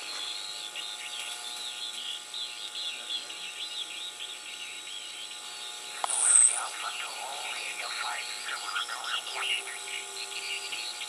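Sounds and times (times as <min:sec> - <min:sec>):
steady radio whistles: 0:00.0 - 0:11.0
warbling chirping radio signal: 0:00.4 - 0:11.0
radio static: 0:05.9 - 0:10.8.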